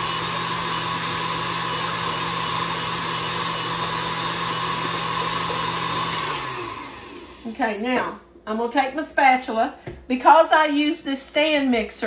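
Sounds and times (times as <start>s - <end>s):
stand mixer motor whirring: 0.0s - 7.8s.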